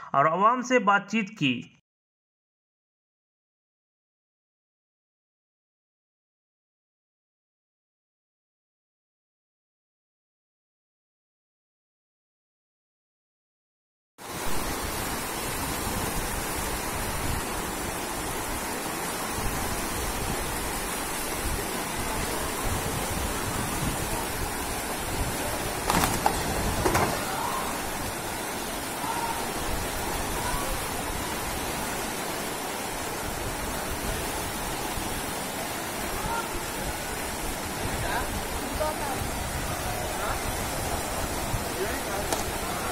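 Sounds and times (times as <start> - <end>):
floodwater rushing down a street: 14.2 - 42.9.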